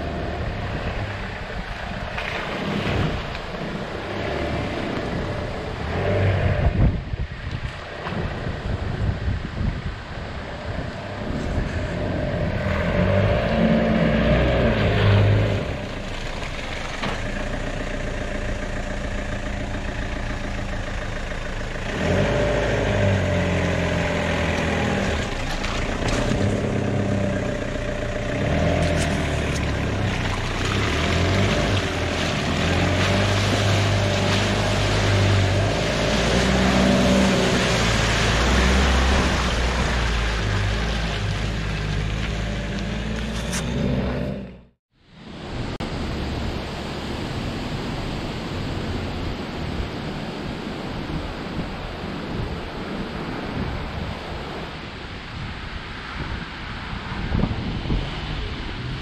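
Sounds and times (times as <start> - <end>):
tyres rushing in mud: 0.0 - 44.7
engine revving: 11.2 - 16.2, 17.0 - 44.8.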